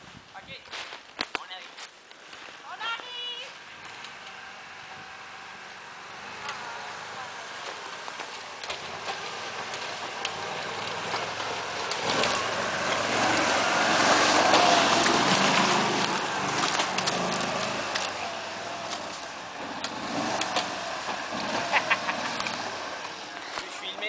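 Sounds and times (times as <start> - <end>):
vehicle engine running: 2.9 - 24.0
clicks and snaps of dry leaves: 14.4 - 20.7.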